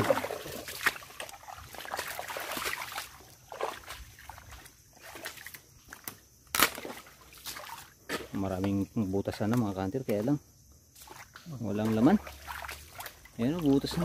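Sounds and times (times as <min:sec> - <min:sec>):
wading through shallow water: 0:00.0 - 0:10.3, 0:10.9 - 0:14.0
splashes and squelches in mud: 0:00.0 - 0:14.0.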